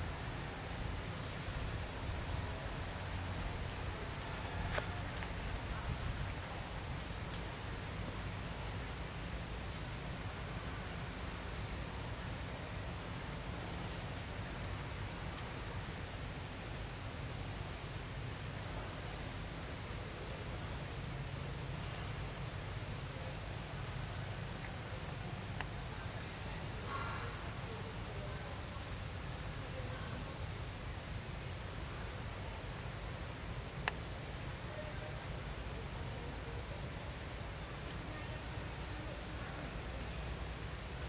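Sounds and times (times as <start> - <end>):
insects buzzing: 21.0 - 41.0.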